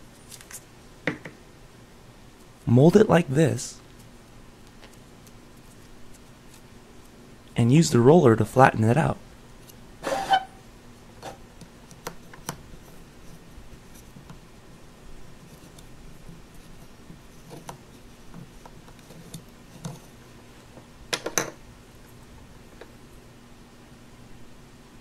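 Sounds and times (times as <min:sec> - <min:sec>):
toy roller tapping and scraping: 0:11.2 - 0:14.4, 0:15.4 - 0:20.2.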